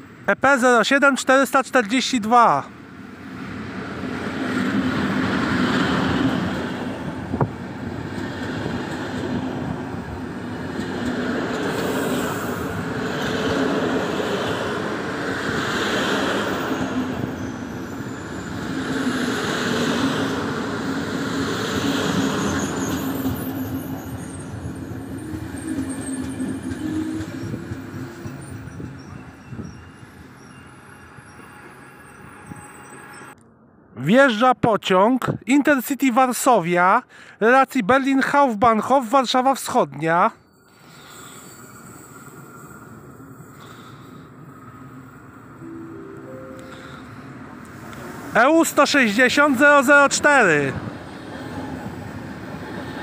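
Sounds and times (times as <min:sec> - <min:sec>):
train wheels on rails: 0:03.3 - 0:33.3, 0:40.5 - 0:45.5
wheel squeal or clatter: 0:22.2 - 0:33.4, 0:40.4 - 0:43.0.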